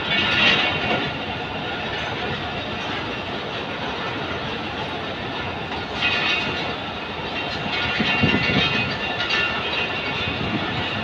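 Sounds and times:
train wheels clattering on rails: 0:00.0 - 0:11.0.

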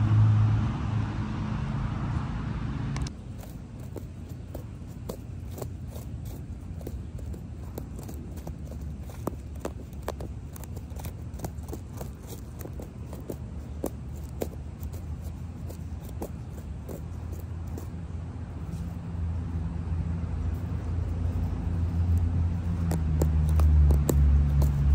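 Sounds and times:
low steady rumble: 0:00.0 - 0:24.9
fingernail scratching through mulch: 0:03.1 - 0:19.5, 0:20.3 - 0:24.9.

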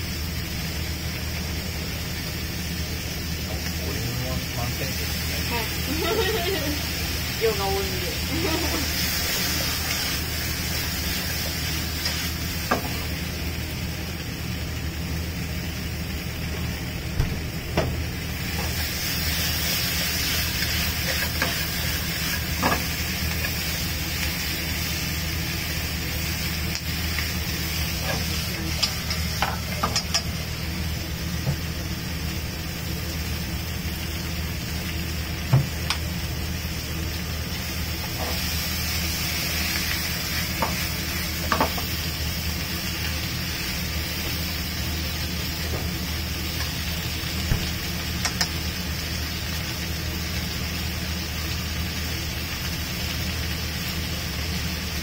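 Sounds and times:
food sizzling in a pan: 0:00.0 - 0:55.0
steady low hum: 0:00.0 - 0:55.0.

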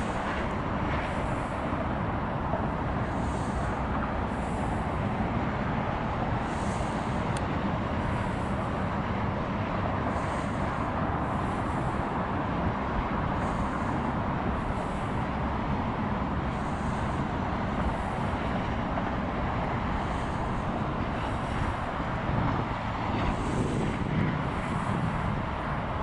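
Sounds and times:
low outdoor rumble: 0:00.0 - 0:26.0.

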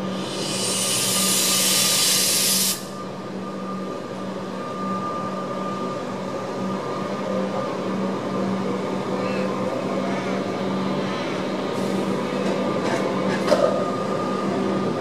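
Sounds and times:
compressed air hissing: 0:00.0 - 0:03.0.

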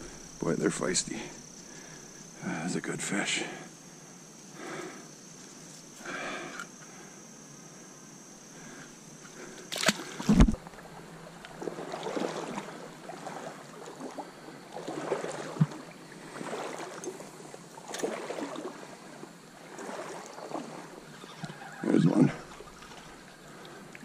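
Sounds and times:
water sloshing in stream: 0:00.0 - 0:02.4, 0:08.6 - 0:24.0.

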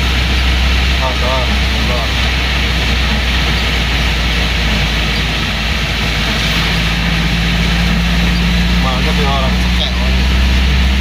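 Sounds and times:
car engine droning: 0:00.0 - 0:11.0
drivetrain whine: 0:00.0 - 0:11.0
rain and tyres on wet road: 0:00.0 - 0:11.0.

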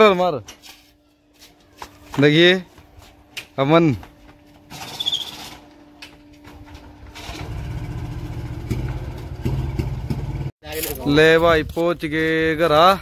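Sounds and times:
motorcycle engine running: 0:06.6 - 0:10.5.

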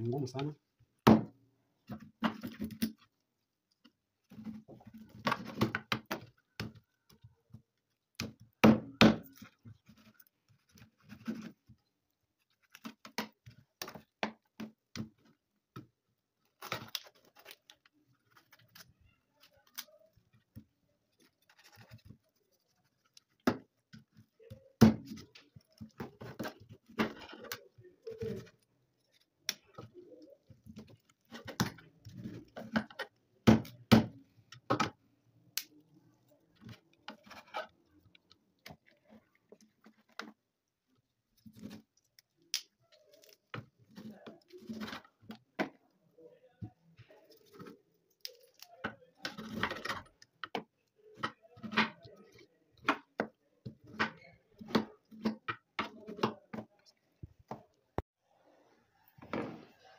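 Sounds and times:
knife cutting and scraping: 0:36.7 - 0:37.9.

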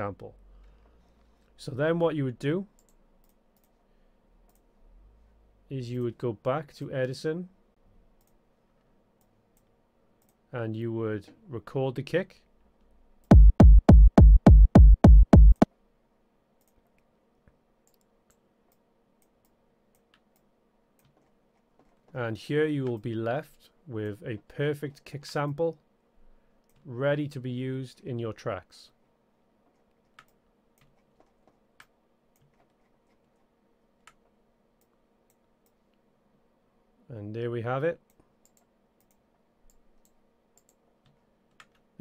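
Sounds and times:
faint steady hum: 0:00.0 - 0:13.6, 0:15.6 - 0:42.0
techno kick drum: 0:13.3 - 0:15.7
computer mouse clicks: 0:17.8 - 0:18.4, 0:30.1 - 0:33.4, 0:38.1 - 0:41.8.

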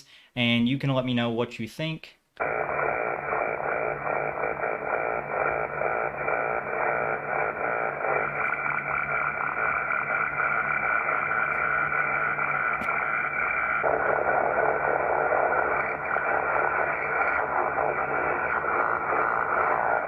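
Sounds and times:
faint steady tones: 0:02.4 - 0:20.0
harsh fluttering radio noise: 0:02.4 - 0:20.0.

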